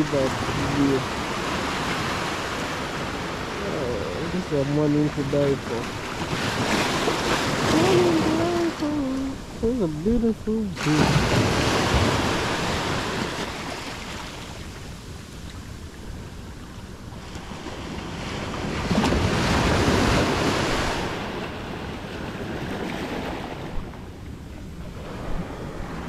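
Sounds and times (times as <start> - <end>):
ocean waves on beach: 0.0 - 26.0
wind buffeting microphone: 14.4 - 26.0.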